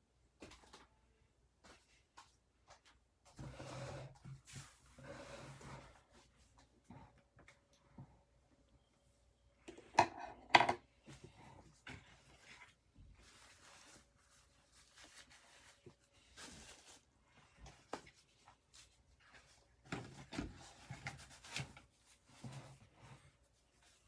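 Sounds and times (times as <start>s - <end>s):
rustling: 11.8s - 24.0s.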